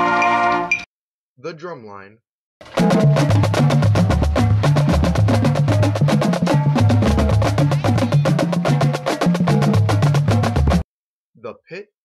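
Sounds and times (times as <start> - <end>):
snare and tenor drums: 2.6 - 10.8.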